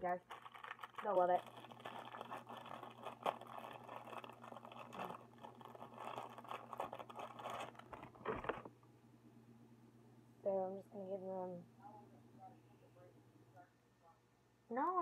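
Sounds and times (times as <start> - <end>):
toasted bread crackling as torn: 0.2 - 8.0.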